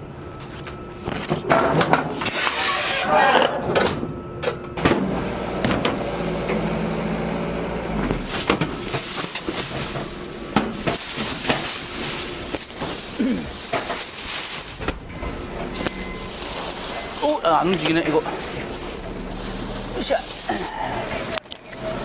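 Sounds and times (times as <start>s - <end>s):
steady machine hum: 0.0s - 22.0s
cargo knocking and clattering: 8.1s - 21.3s.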